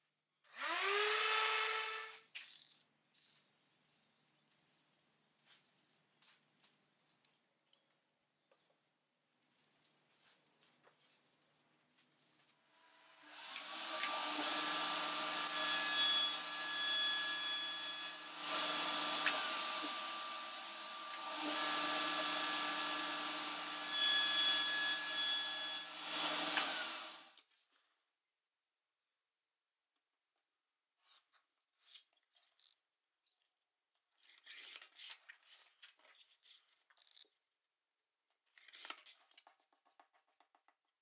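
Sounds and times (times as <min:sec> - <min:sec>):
saw blade cutting plastic: 0:10.6 - 0:27.4
table saw motor whine: 0:13.4 - 0:27.3.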